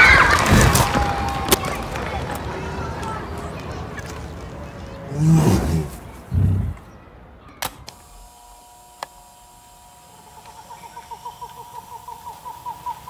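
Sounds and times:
deep animal grunt: 5.1 - 6.8
large animal roaring: 5.1 - 6.8
faint chirps: 9.5 - 13.0.

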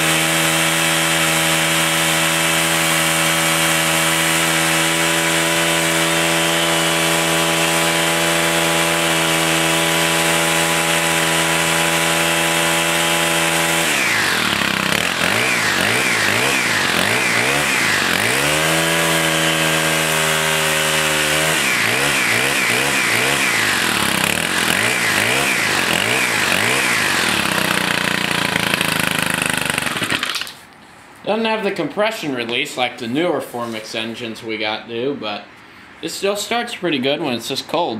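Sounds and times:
trimmer engine revving: 0.0 - 30.6.

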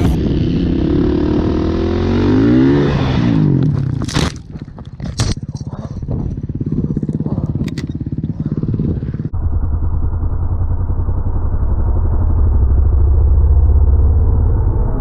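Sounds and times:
dirt bike engine puttering: 0.0 - 9.3
dirt bike riding rumble: 0.0 - 15.0.

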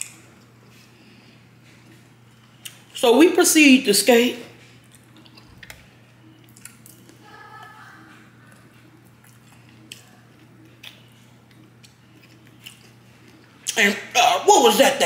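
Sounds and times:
person chewing: 1.8 - 3.0, 4.7 - 13.8.

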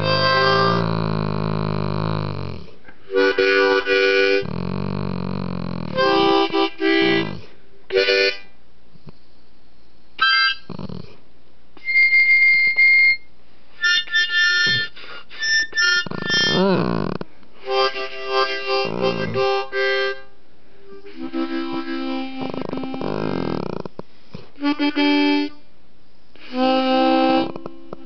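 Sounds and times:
harmonica playing chords: 0.0 - 2.2, 3.0 - 5.0, 5.8 - 8.6, 10.2 - 10.8, 11.8 - 23.7, 24.6 - 25.7, 26.4 - 28.0
dog humming along: 0.0 - 7.6, 10.3 - 11.2, 14.5 - 17.3, 18.5 - 19.8, 21.1 - 25.2, 26.4 - 28.0.

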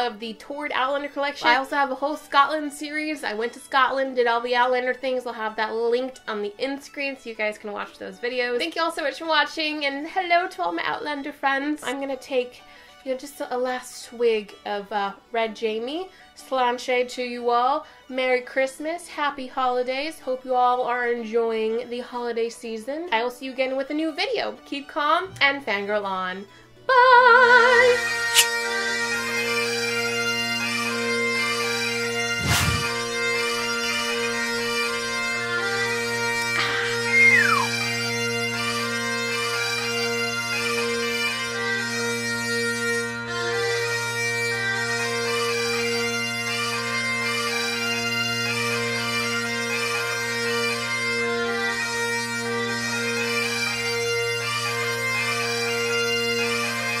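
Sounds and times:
bagpipe music: 0.0 - 22.3, 23.0 - 57.0
short rushing noise: 32.4 - 33.0.

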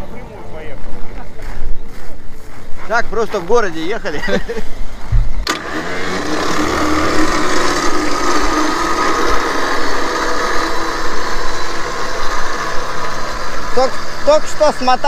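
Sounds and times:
motor switch click: 5.4 - 9.3
motor humming and whining: 5.4 - 15.0.

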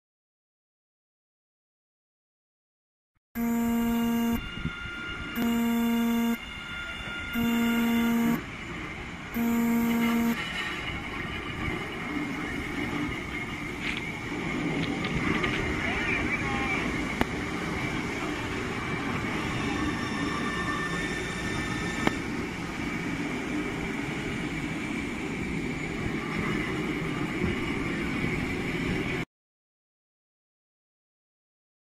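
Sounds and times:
thin high tone: 3.4 - 8.5, 9.4 - 10.5
subway train horn blasts: 3.4 - 11.0
train cars rumbling past: 10.4 - 29.2.

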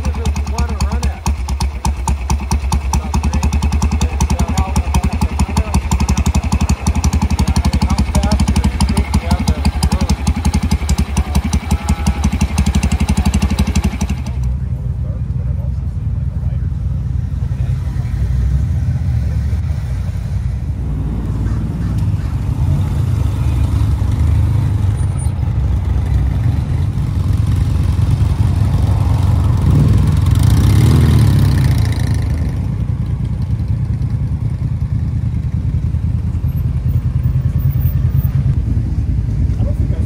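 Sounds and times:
motorcycle engine rumbling: 0.0 - 40.0
vehicle passing close: 17.2 - 33.1.

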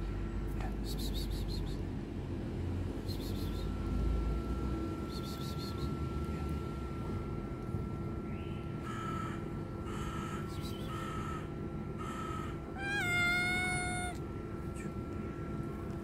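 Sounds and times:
cat meowing: 12.8 - 14.2.

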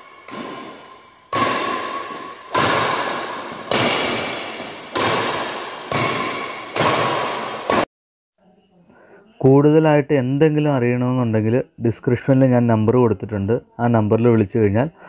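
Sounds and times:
racket hitting shuttlecock: 0.0 - 7.9.

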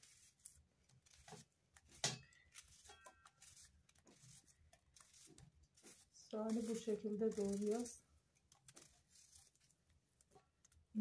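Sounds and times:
knife cutting onion: 0.0 - 8.0.

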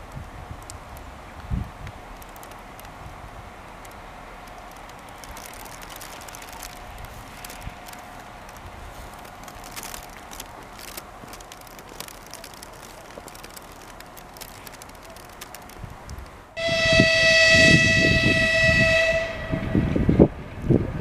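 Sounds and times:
faint outdoor background: 0.0 - 21.0
locomotive horn blast: 16.6 - 20.1.

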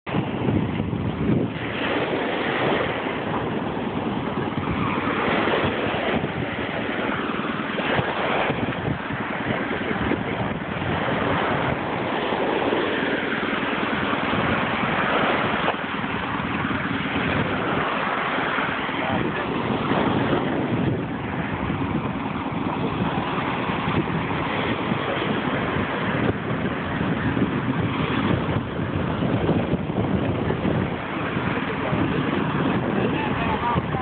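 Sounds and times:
surf washing: 0.0 - 34.0
wind buffeting microphone: 0.0 - 34.0.

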